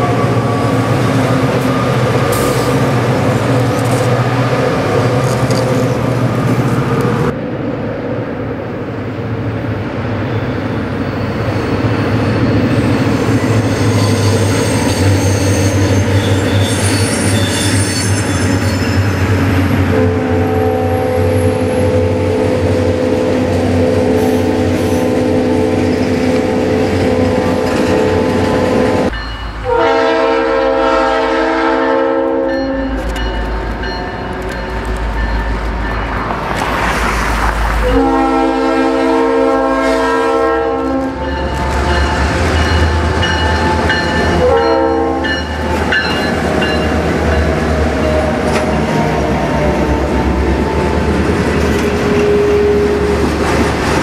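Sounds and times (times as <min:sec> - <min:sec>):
locomotive horn blasts: 0:19.9 - 0:34.8, 0:37.8 - 0:46.8, 0:52.0 - 0:53.2
train wheels clattering on rails: 0:41.2 - 0:54.0.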